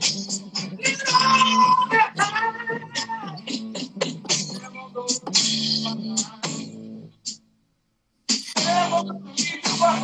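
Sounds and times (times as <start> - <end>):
person singing: 0.8 - 3.8, 8.6 - 10.0.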